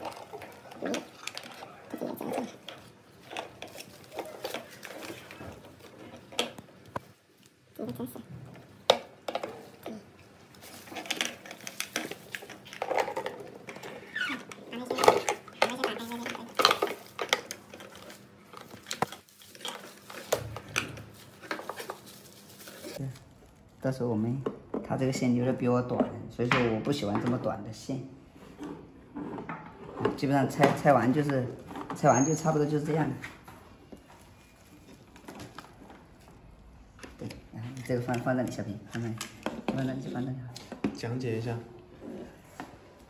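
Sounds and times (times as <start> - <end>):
cables and plastic bag handled: 0.0 - 8.1, 9.4 - 24.4, 33.9 - 39.2
bubble wrap rustling: 0.0 - 8.2, 9.6 - 13.1, 13.9 - 24.4, 34.0 - 36.6.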